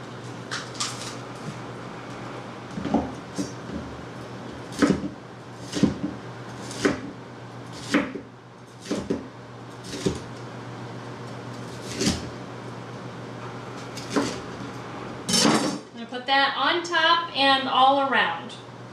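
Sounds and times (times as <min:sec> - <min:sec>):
knife slicing pepper: 0:06.6 - 0:07.1.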